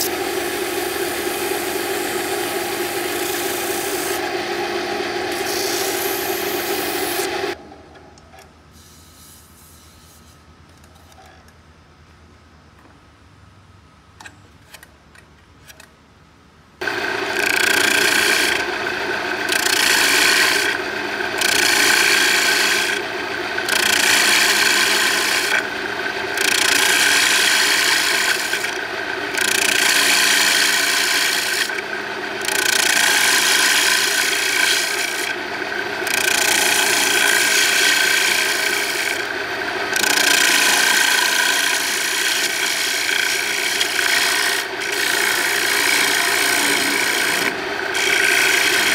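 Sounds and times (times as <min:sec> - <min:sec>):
gouge cutting wood on a lathe: 0:00.0 - 0:07.6, 0:16.8 - 0:48.9.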